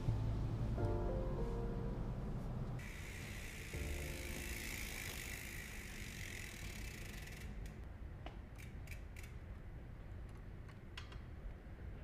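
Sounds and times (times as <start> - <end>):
bicycle freehub ratcheting: 2.8 - 7.8, 8.5 - 9.6.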